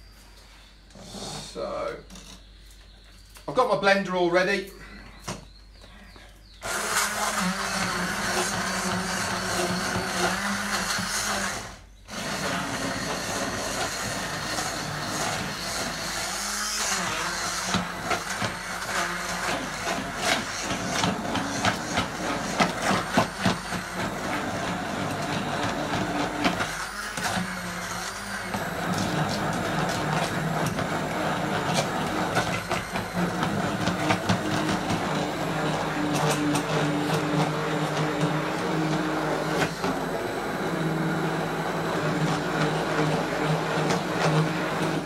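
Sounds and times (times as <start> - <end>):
hand blender motor hum: 6.6 - 45.0
blender head knocking pot: 16.9 - 45.0.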